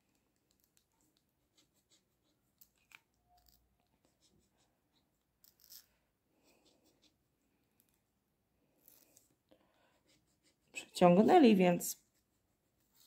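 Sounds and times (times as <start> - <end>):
scratching on a scratch card: 0.4 - 7.2.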